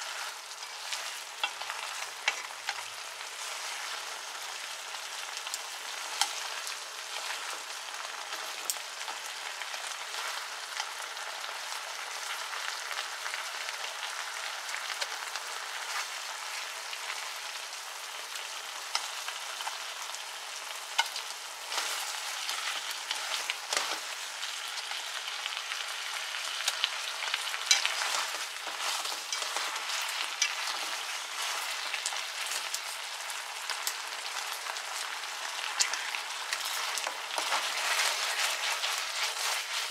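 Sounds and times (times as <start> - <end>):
sauce sizzling and bubbling in pan: 0.0 - 39.9
chopsticks clicking against pan: 1.4 - 2.9, 20.9 - 24.0, 26.6 - 32.8.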